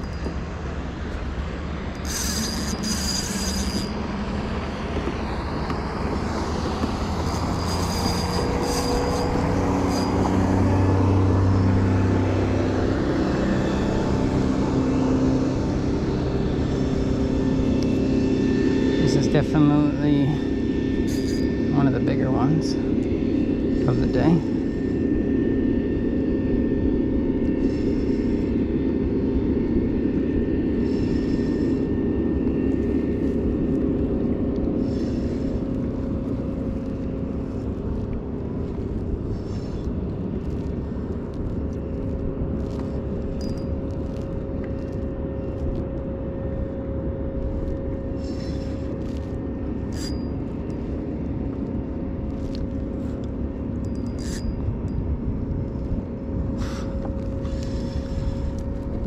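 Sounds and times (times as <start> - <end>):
engine humming steadily: 0.0 - 59.0.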